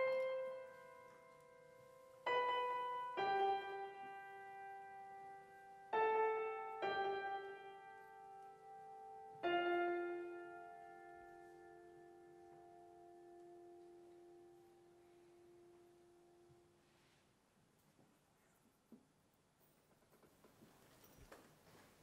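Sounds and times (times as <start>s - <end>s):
piano chords: 0.0s - 16.8s.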